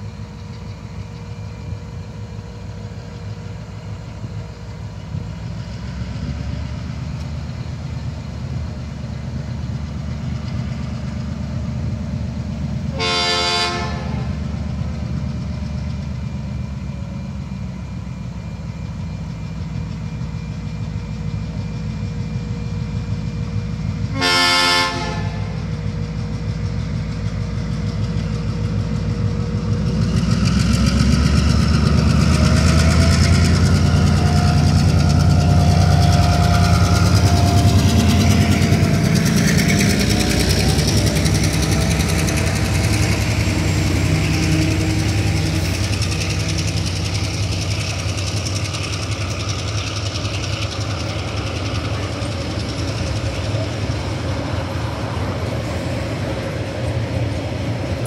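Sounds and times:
locomotive engine rumble: 0.0 - 58.0
train horn blasts: 12.9 - 14.4, 24.1 - 25.6.

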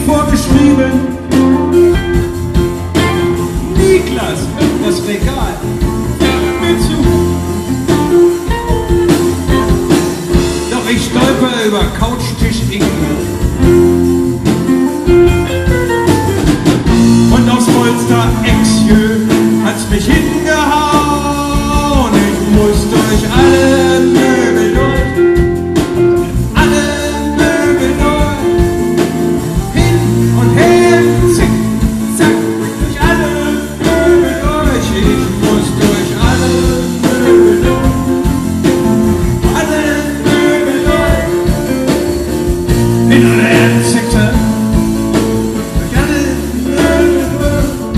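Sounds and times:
man singing into microphone: 0.0 - 1.5, 3.7 - 7.4, 10.6 - 13.4, 17.2 - 25.6, 26.5 - 38.5, 39.4 - 42.1, 43.0 - 47.9
live rock band: 0.0 - 47.9.

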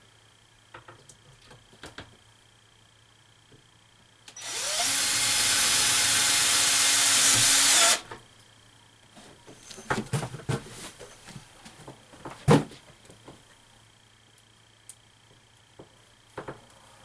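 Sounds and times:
power drill driving screw: 4.3 - 8.1.

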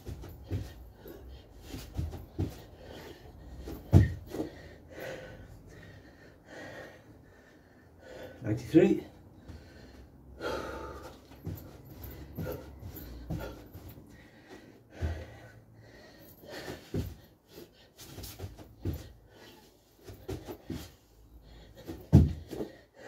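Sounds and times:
man panting and gasping: 0.0 - 23.0.

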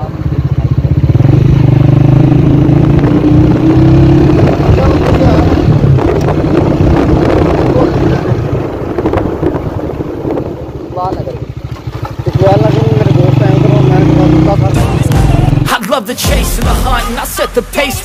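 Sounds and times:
road and wind noise: 0.0 - 15.7
car engine accelerating: 1.0 - 9.8.

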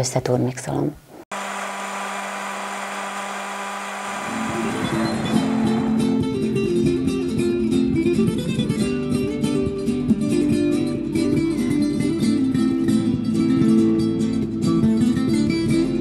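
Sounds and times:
blender running: 1.3 - 6.4.

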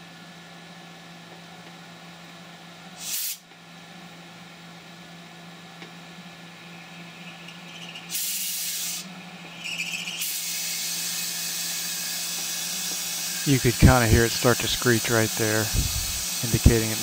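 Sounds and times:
loud hiss: 3.0 - 3.4, 8.1 - 9.1, 10.2 - 17.0
mill spindle humming: 4.8 - 17.0
cutting tool screeching: 7.2 - 17.0.

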